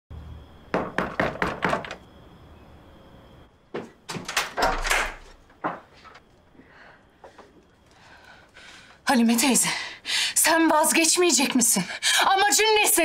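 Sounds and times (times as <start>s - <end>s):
knuckles knocking on wooden door: 0.7s - 2.0s
door thump: 3.8s - 5.8s
door latch and lock clattering: 4.1s - 5.4s.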